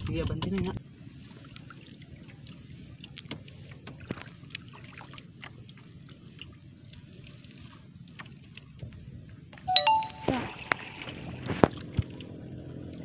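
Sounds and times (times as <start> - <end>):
wind: 0.0 - 13.0
sea water rumble: 0.8 - 13.0
high-pitched call: 9.7 - 10.8.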